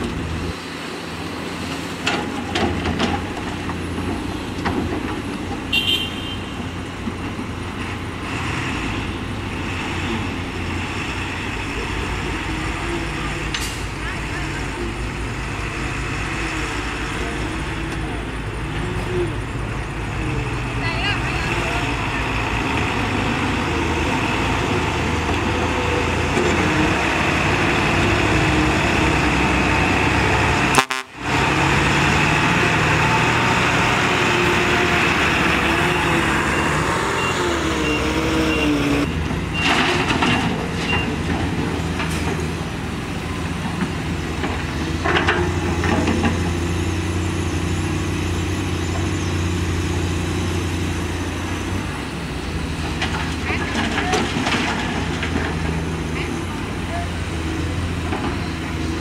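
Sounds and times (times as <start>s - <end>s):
diesel truck engines running: 0.0s - 59.0s.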